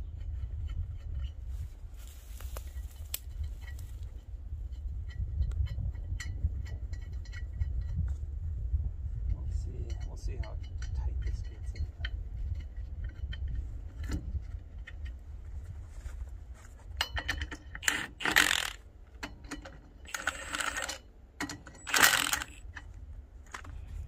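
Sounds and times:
metal clinks of nuts and tools: 0:17.0 - 0:22.7
impact wrench hammering lug nuts: 0:17.2 - 0:18.8, 0:19.5 - 0:22.6.

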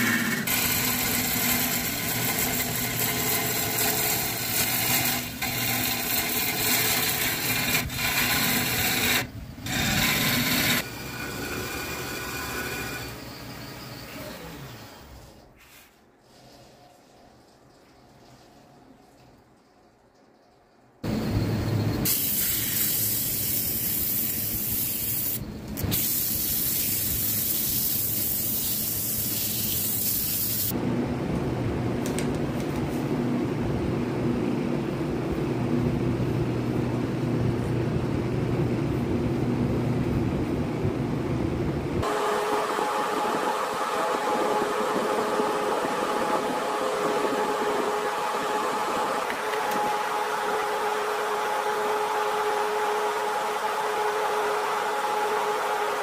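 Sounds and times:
workshop machinery running: 0:00.0 - 0:15.6, 0:21.0 - 0:56.0
loud even hiss: 0:22.0 - 0:30.7.

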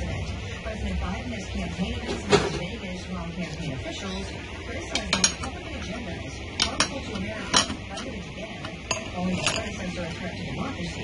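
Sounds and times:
low steady hum: 0:00.0 - 0:11.0
metal tools clinking: 0:08.9 - 0:09.8.

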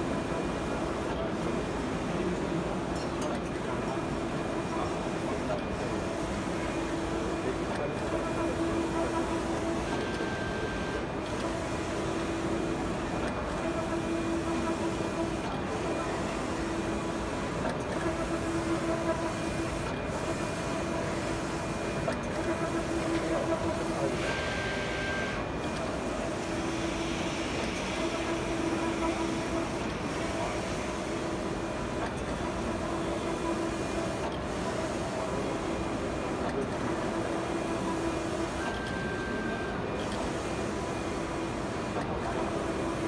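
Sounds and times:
print head carriage motor whine: 0:00.0 - 0:43.0.

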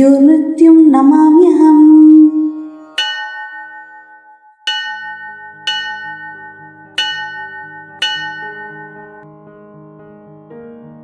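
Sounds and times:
struck bell tones ringing: 0:02.9 - 0:09.2.

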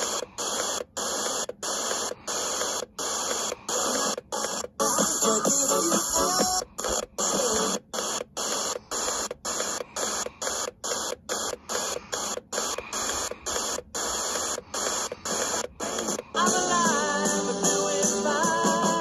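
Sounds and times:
radio static hiss: 0:00.0 - 0:19.0.

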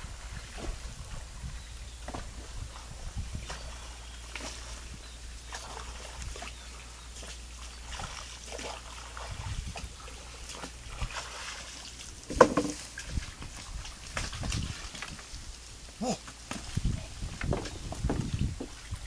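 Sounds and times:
paddle sloshing in water: 0:00.0 - 0:19.0
sharp wooden knock: 0:12.3 - 0:12.8.

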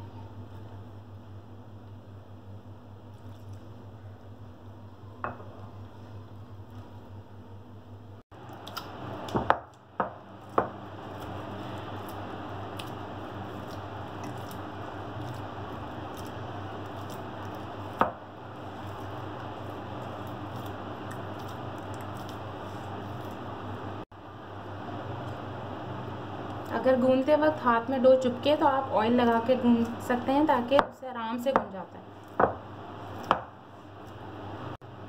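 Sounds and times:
steady low hum: 0:00.0 - 0:35.0
hands kneading sticky dough: 0:10.3 - 0:24.0.

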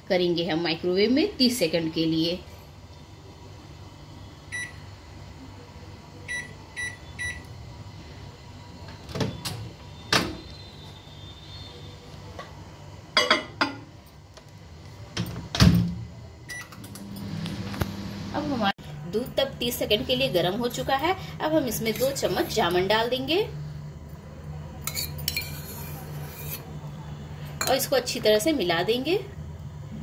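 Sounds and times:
microwave humming: 0:00.2 - 0:24.8
microwave keypad beeps: 0:04.5 - 0:04.8, 0:06.3 - 0:07.5, 0:16.5 - 0:16.8.

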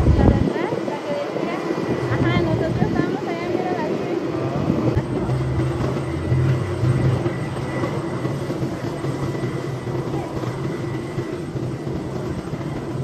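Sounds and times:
helicopter engine and rotor drone: 0:00.0 - 0:13.0
high whine: 0:04.1 - 0:13.0.

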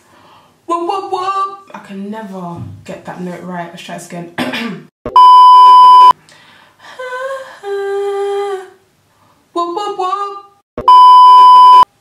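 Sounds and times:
woman singing: 0:00.7 - 0:01.8, 0:06.8 - 0:08.8, 0:09.5 - 0:10.6
loud bleep tone: 0:05.1 - 0:06.1, 0:10.8 - 0:11.9.

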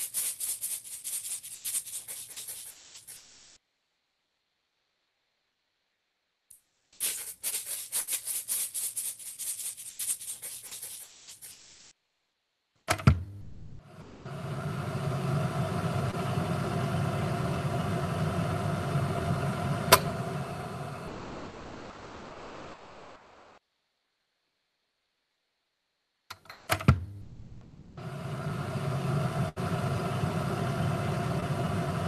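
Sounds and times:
steady hum: 0:13.3 - 0:23.6, 0:27.1 - 0:32.0.

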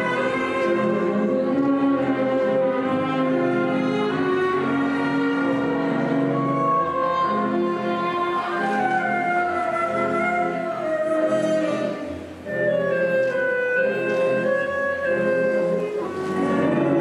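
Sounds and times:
orchestral strings holding long notes: 0:00.0 - 0:17.0.

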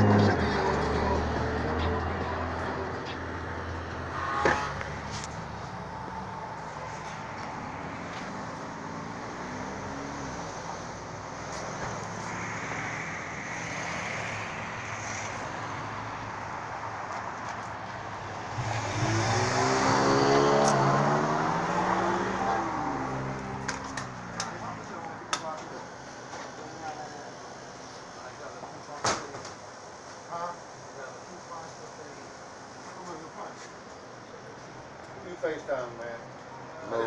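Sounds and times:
motor vehicle passing close: 0:00.0 - 0:16.1, 0:18.2 - 0:25.0
street traffic noise: 0:00.0 - 0:37.0.

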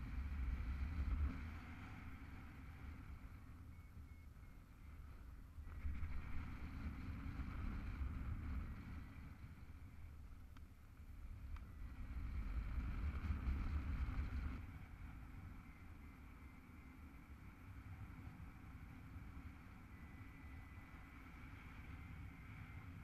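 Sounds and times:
faint clicks: 0:10.5 - 0:11.7
wind buffeting microphone: 0:11.1 - 0:16.4.

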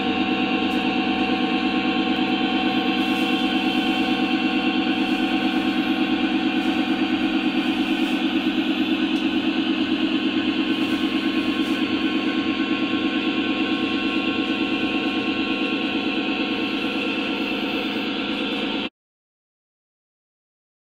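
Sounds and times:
model train running on track: 0:00.0 - 0:18.9.

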